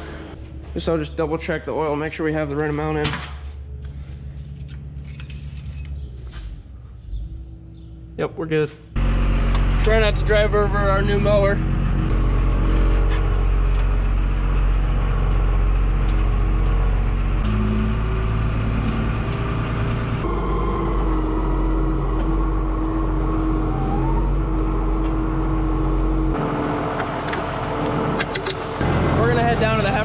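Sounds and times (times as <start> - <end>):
tractor diesel engine running: 9.0 - 30.0.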